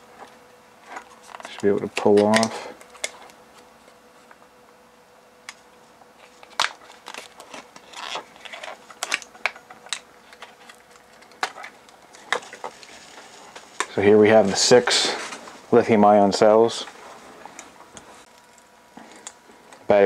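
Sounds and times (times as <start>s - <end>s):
plastic clicks and rustling: 6.4s - 14.0s.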